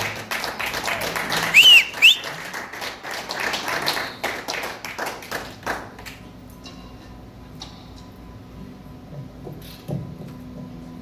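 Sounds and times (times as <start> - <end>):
audience applauding and cheering: 0.0 - 6.1
short whistles: 1.5 - 2.3.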